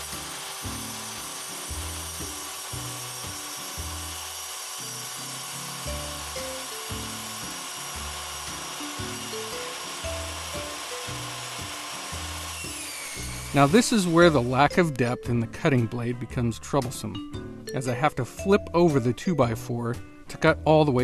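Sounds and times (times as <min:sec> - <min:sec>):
table saw cutting wood: 0:00.0 - 0:15.0.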